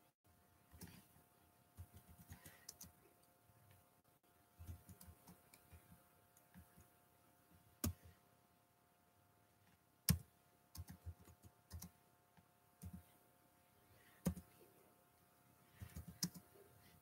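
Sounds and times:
keyboard typing and clicking: 0.7s - 1.1s, 1.8s - 3.0s, 4.6s - 6.9s, 7.8s - 8.1s, 10.0s - 12.0s, 12.8s - 13.1s, 14.2s - 14.6s, 15.7s - 16.6s.

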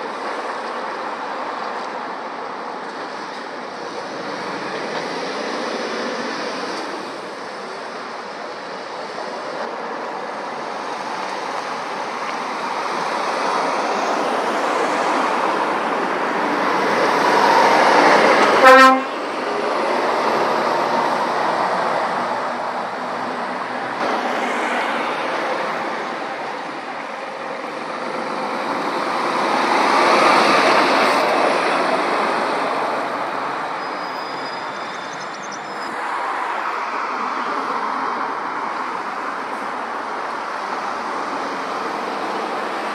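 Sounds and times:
heavy road traffic passing: 0.0s - 42.9s
lorry engine and tyre noise: 0.0s - 42.9s
short sharp horn toot: 18.5s - 19.1s.

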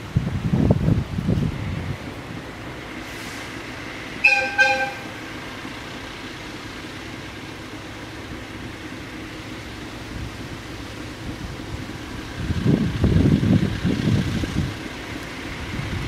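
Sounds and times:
locomotive horn blasts: 4.2s - 5.3s.

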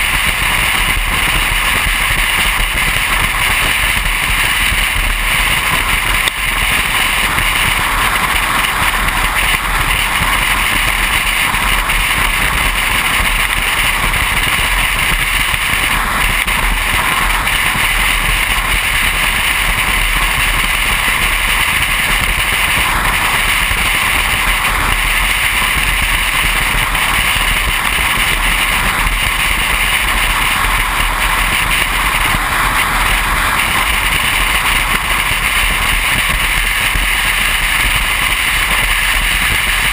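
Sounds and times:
car driving at highway speed: 0.1s - 39.9s.

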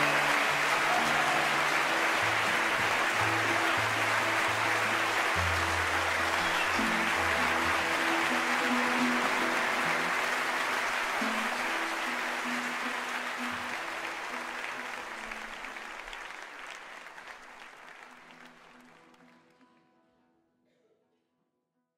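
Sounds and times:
audience applause: 0.0s - 19.6s.

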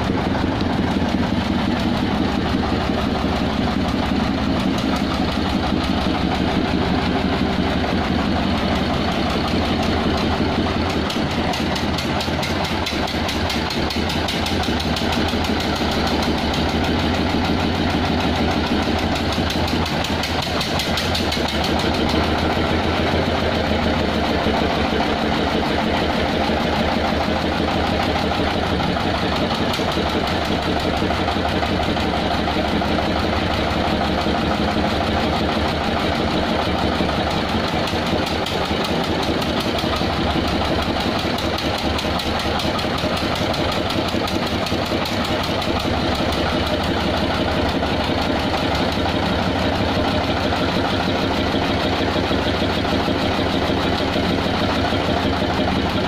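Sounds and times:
truck engine idling with pulsing knock: 0.0s - 56.0s.

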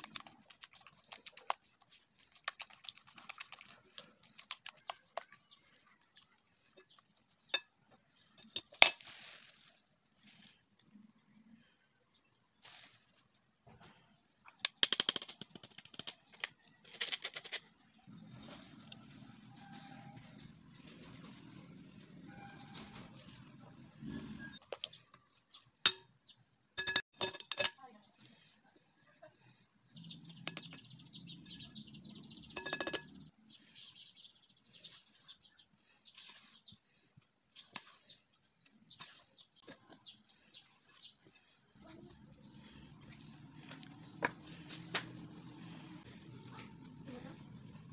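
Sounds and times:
metal spoon scraping a sieve: 32.5s - 33.2s.

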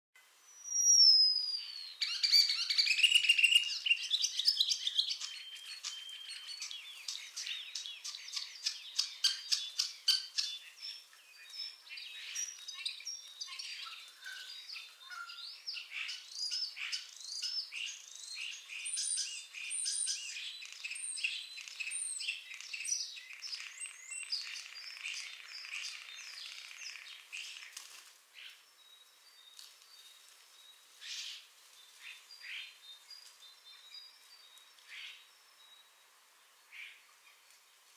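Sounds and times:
starling singing: 1.0s - 10.8s.

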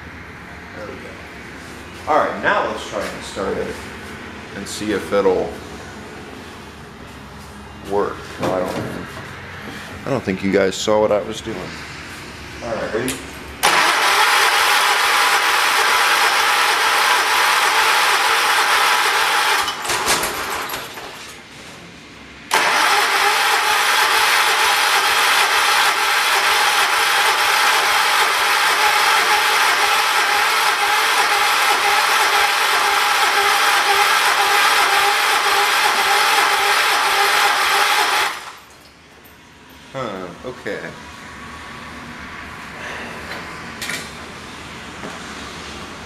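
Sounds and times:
engine cranking on starter: 13.6s - 21.2s, 22.5s - 38.7s.

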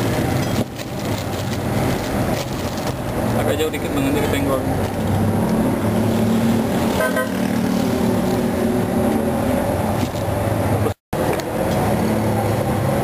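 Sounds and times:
car horn toot: 7.0s - 7.5s.

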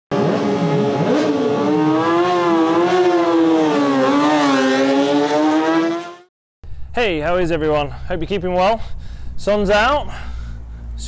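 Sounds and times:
motorcycle engine revving high: 0.1s - 6.3s.

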